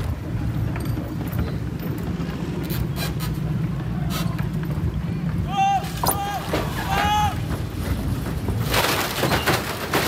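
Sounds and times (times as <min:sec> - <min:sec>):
boat engines rumbling: 0:00.0 - 0:10.0.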